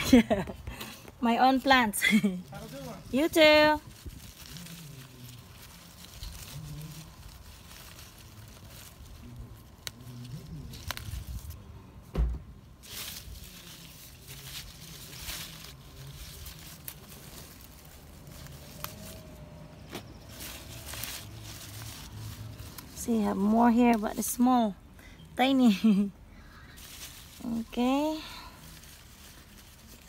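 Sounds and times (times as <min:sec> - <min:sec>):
leaves rustling: 0:00.0 - 0:30.0
dull thump: 0:12.1 - 0:12.6.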